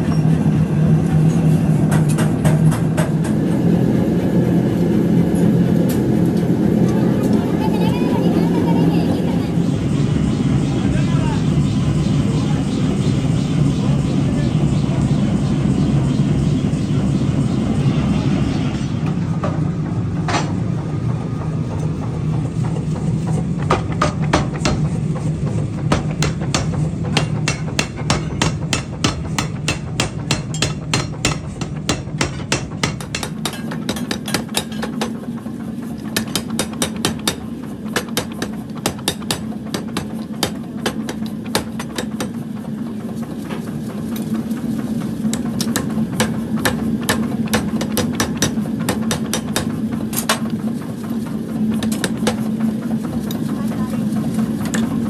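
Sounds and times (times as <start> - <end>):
machine humming: 0.0 - 55.0
power hammer pounding steel: 1.8 - 3.6, 19.0 - 42.7, 45.0 - 53.7.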